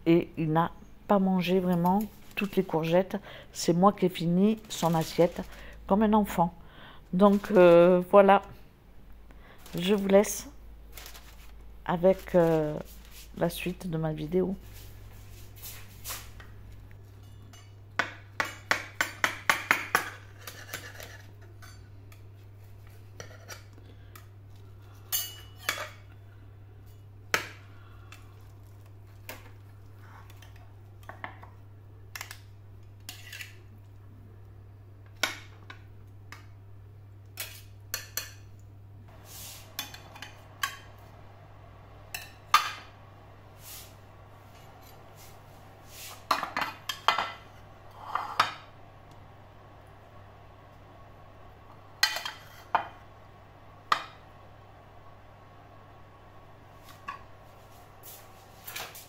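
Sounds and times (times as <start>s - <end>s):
steady low hum: 0.0s - 59.0s
dishes and cutlery clinking: 25.1s - 26.0s.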